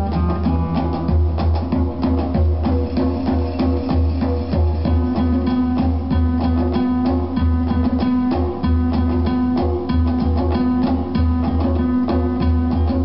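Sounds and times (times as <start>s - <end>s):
guitar-led music with pulsing bass: 0.0s - 1.4s.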